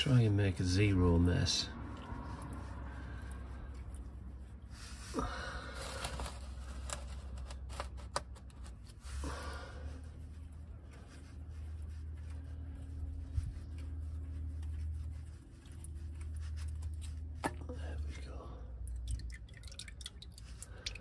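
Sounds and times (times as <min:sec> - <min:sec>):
steady low hum: 0:00.0 - 0:21.0
scraping handling noises: 0:04.7 - 0:09.4.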